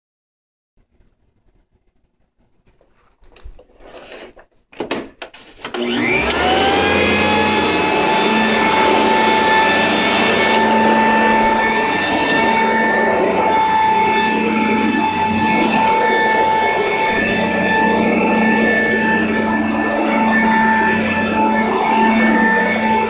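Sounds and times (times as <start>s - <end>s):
vacuum cleaner motor whining: 4.9s - 23.0s.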